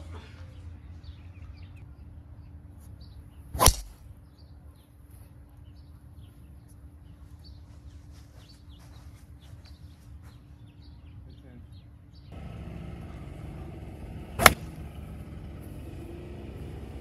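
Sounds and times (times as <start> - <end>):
low outdoor background: 0.0 - 17.0
golf club striking ball: 3.6 - 4.0, 12.4 - 15.8.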